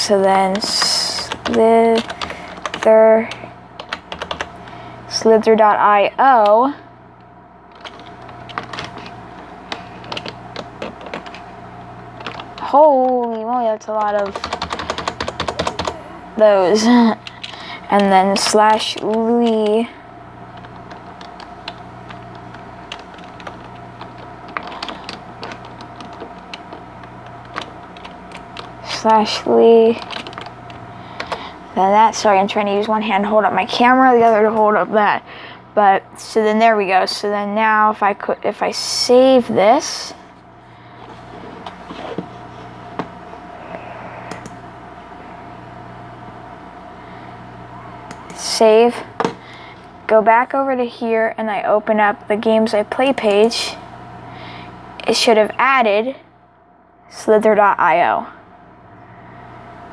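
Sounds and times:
computer hum: 0.0s - 59.9s
computer keyboard typing: 0.3s - 4.5s, 7.7s - 11.4s, 12.2s - 16.0s, 17.2s - 19.9s, 20.5s - 31.5s, 44.3s - 44.6s.

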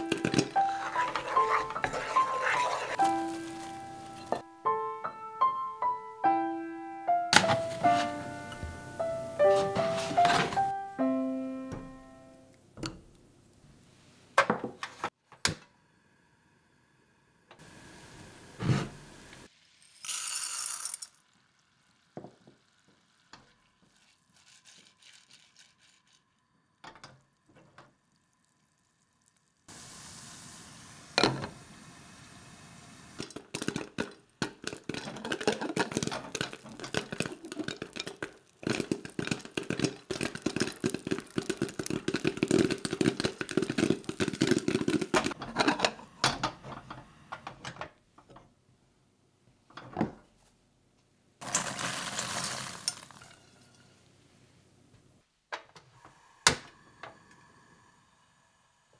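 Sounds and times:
kernels pouring into pot: 0.0s - 4.4s, 19.4s - 26.6s, 33.2s - 45.4s, 51.4s - 54.0s
popcorn popping: 0.0s - 4.4s, 33.2s - 46.5s, 51.4s - 53.8s
fat sizzling: 0.0s - 4.8s, 17.6s - 27.5s, 28.1s - 46.2s, 51.4s - 54.3s.

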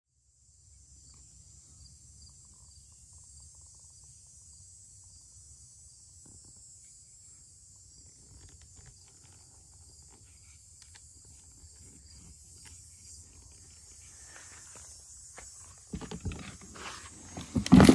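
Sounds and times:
insect chorus: 0.2s - 17.9s
faint clicks and rustles: 8.0s - 15.0s.

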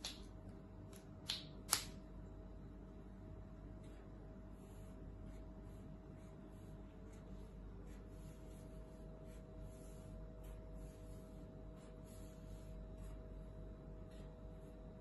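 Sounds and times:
steady low hum: 0.0s - 15.0s
marker scratching on paper plate: 4.6s - 13.3s.

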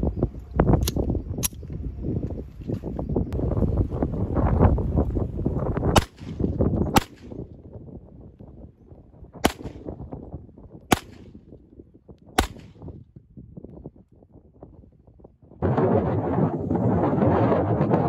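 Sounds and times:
handgun shots with echo: 6.0s - 7.4s, 9.4s - 9.9s, 10.9s - 11.4s, 12.4s - 12.9s
low rumble: 15.6s - 18.0s.

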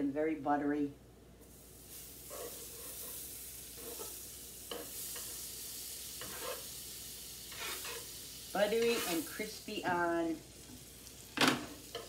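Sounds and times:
butter sizzling in a pan: 1.4s - 12.0s
spatula scraping a pan: 1.9s - 9.5s, 11.6s - 12.0s.

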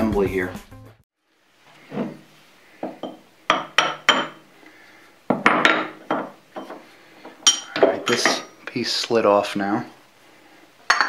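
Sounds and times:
tools clinking against steel parts: 7.4s - 8.6s.

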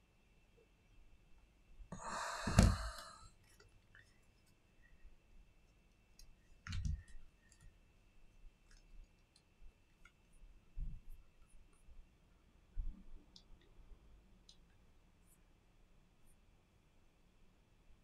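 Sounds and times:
small plastic clicks: 6.0s - 7.8s.

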